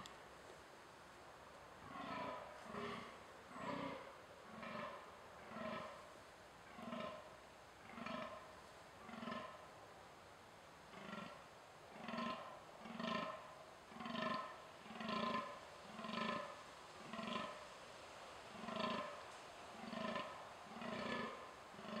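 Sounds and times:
deer groaning calls: 1.9 - 5.9, 19.8 - 22.0.

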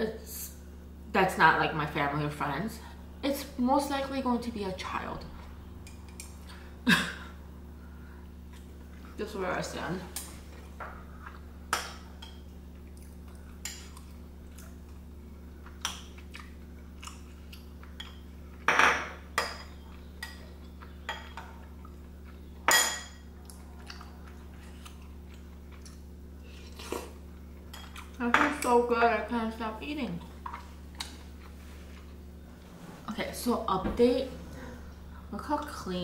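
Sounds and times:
low electrical hum: 0.0 - 36.0
chewing: 12.7 - 18.7, 19.8 - 22.5, 23.3 - 28.2.

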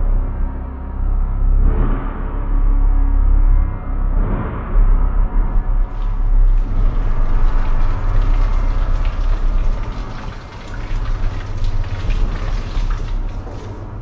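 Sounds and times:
deep steady rumble: 0.0 - 14.0
rain pattering on wet paving: 5.7 - 14.0.

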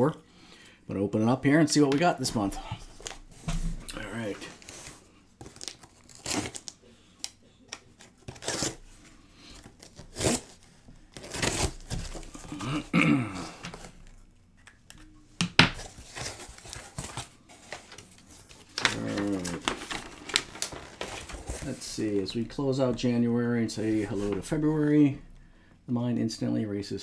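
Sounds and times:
cardboard box tearing: 5.5 - 6.7, 8.3 - 8.8, 9.8 - 12.6
paper rustling: 15.8 - 22.3, 23.8 - 24.6.

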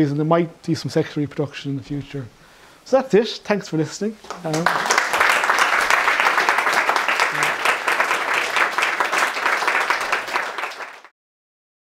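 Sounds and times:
audience applauding: 4.3 - 11.1.

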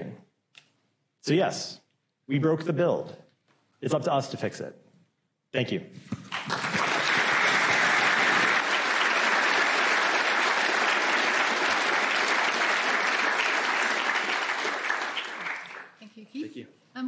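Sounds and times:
audience applauding: 6.2 - 16.0.

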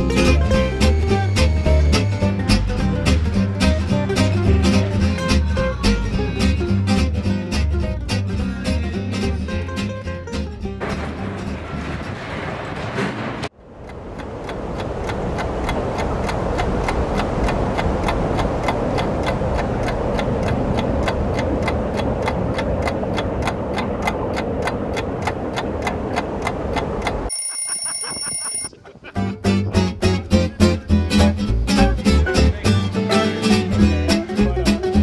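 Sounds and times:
clock ticking fast: 13.6 - 28.7.

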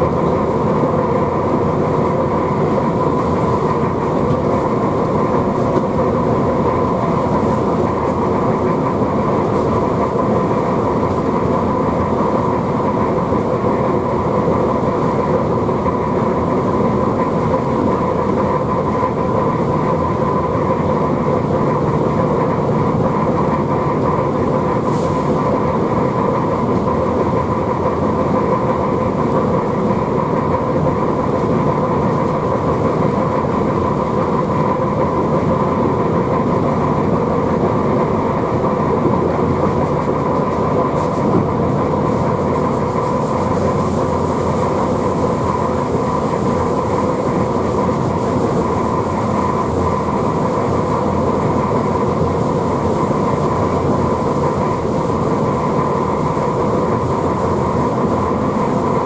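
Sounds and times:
electric locomotive running: 0.0 - 59.0.

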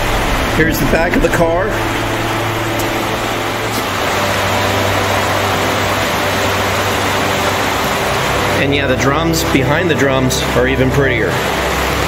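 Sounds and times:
heavy rain on roof: 0.0 - 12.0
steady low hum: 0.0 - 12.0.

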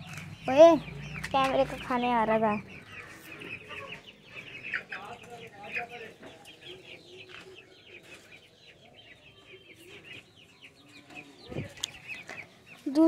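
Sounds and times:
chickens clucking softly: 2.8 - 8.6.

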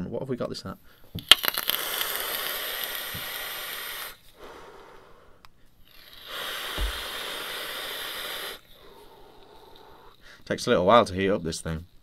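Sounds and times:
air hissing through vape: 1.2 - 5.1, 5.9 - 10.3.

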